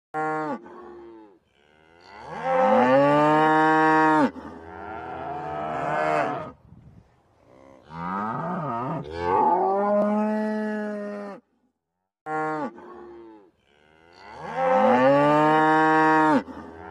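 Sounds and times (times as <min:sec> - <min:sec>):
young cattle mooing: 0:00.2 - 0:06.5.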